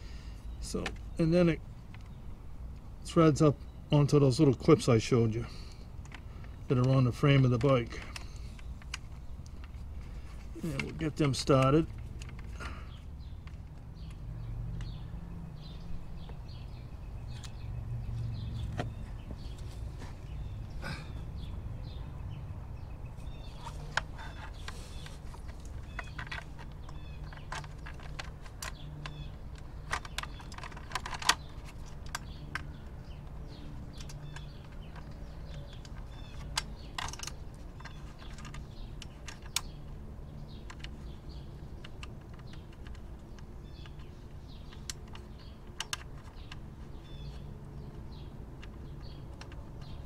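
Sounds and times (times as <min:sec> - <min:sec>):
clicks and taps of screws: 0:06.0 - 0:15.0, 0:23.2 - 0:50.0.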